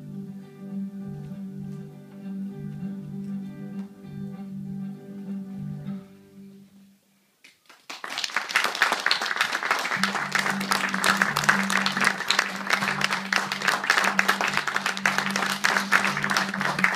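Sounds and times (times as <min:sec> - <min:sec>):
background music: 0:00.0 - 0:07.0, 0:09.8 - 0:16.9
audience applauding: 0:07.6 - 0:16.9.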